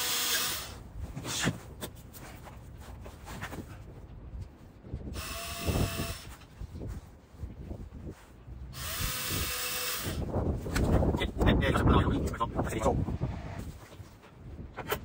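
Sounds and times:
cordless drill running: 0.0s - 0.8s, 5.2s - 6.3s, 8.7s - 10.3s.

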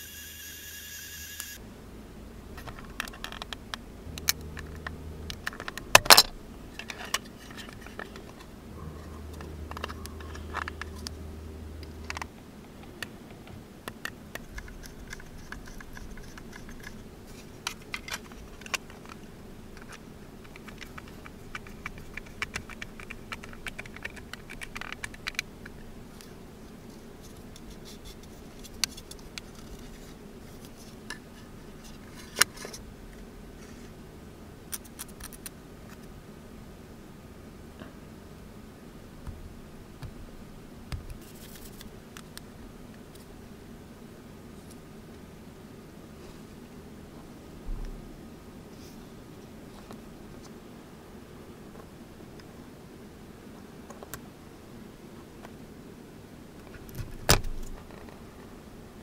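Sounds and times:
low hum: 0.0s - 53.7s
model parts clicking and tapping: 12.0s - 19.2s, 19.8s - 25.8s.

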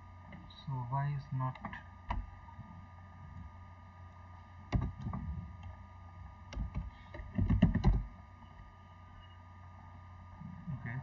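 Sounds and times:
electrical hum: 0.0s - 11.0s
computer keyboard keystrokes: 4.7s - 5.2s, 6.5s - 8.1s.

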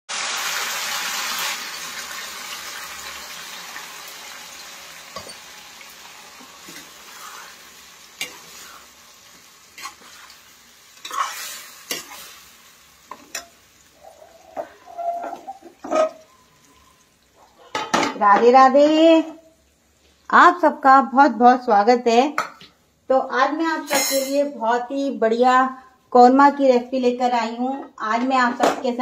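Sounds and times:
food sizzling in a pan: 0.1s - 21.1s, 22.8s - 24.6s
spatula scraping a pan: 6.4s - 16.3s.

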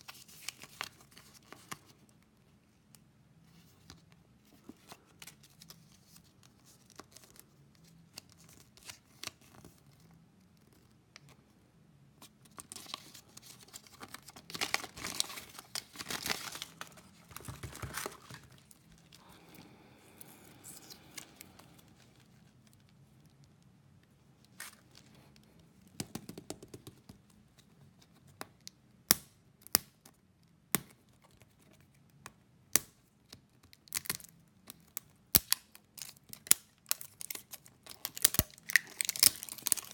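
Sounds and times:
candy wrappers crinkling and tearing: 12.5s - 23.0s, 33.7s - 39.9s.

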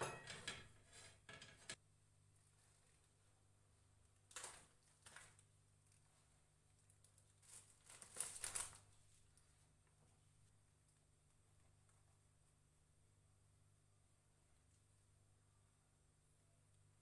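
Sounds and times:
bread buns torn apart: 6.8s - 8.9s
plastic packet crinkling: 6.8s - 9.0s
low steady hum: 8.8s - 17.0s.

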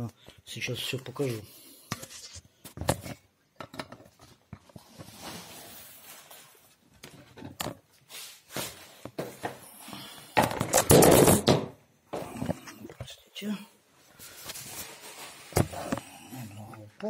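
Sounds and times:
soft rustle: 14.0s - 15.5s.

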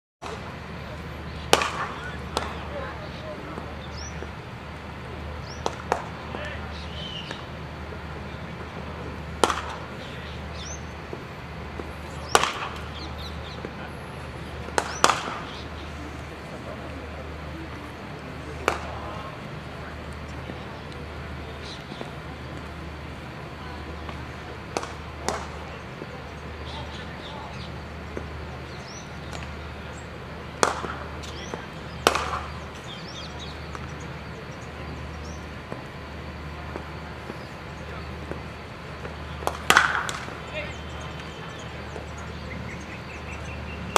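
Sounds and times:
cricket bat striking ball: 1.4s - 2.6s, 5.5s - 6.2s, 9.4s - 10.0s, 11.8s - 13.0s, 14.7s - 15.7s, 18.6s - 19.0s, 24.7s - 25.7s, 30.6s - 32.7s, 38.3s - 40.4s.

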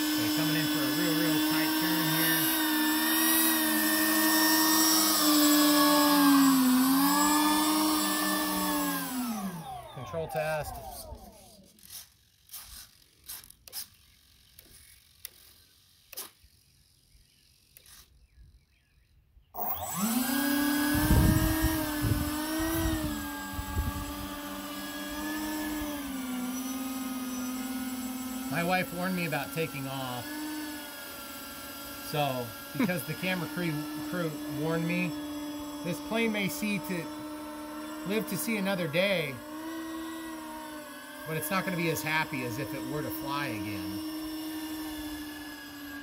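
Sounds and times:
electric fans whining: 0.0s - 12.0s, 19.6s - 46.0s.

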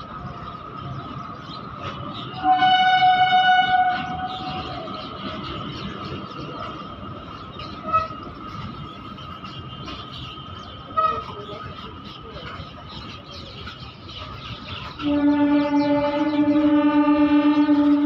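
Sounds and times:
train wheels rumbling on rail: 0.0s - 18.0s
train horn: 2.3s - 5.0s, 7.8s - 8.6s, 10.5s - 11.5s, 15.0s - 18.0s.

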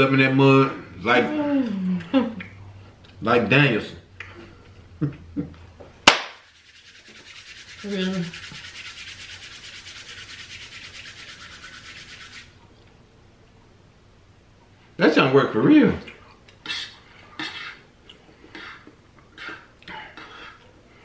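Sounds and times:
palms rubbing together: 6.4s - 12.6s.

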